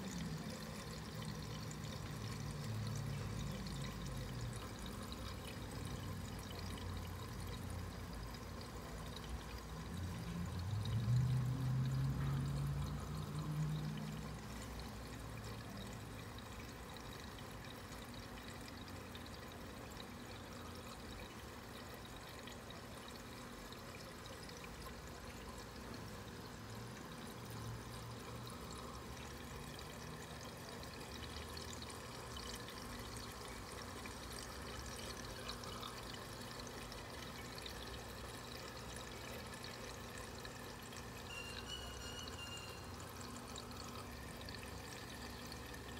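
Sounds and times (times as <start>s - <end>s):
water trickling: 0.0s - 45.9s.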